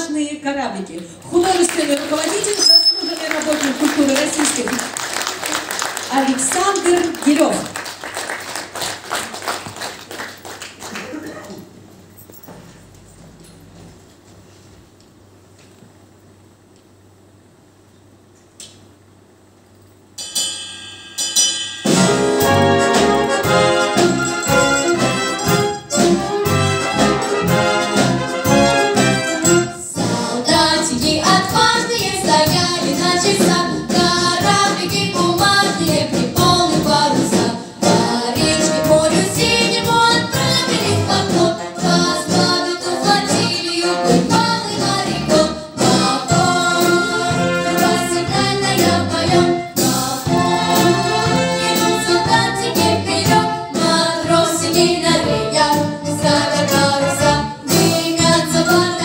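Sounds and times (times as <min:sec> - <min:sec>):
military band playing: 0:21.9 - 0:30.4, 0:37.8 - 0:59.0
children singing: 0:36.9 - 0:59.0.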